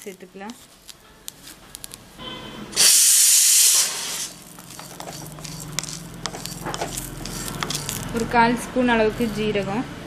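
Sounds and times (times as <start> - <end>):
wooden spatula scraping and rattling: 0.0 - 2.0, 4.3 - 8.5, 9.1 - 9.6
leaves hissing in hot pan: 2.8 - 8.2.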